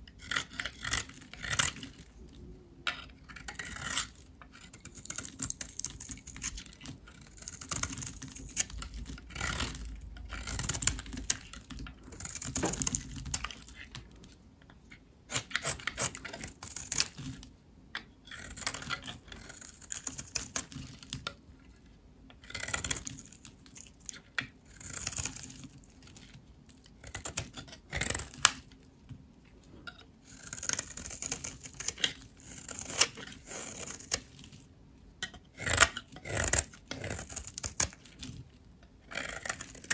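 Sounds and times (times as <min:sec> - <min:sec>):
blade scraping through dry soap: 0:00.1 - 0:17.5, 0:18.2 - 0:21.4, 0:22.3 - 0:28.9, 0:29.6 - 0:39.9.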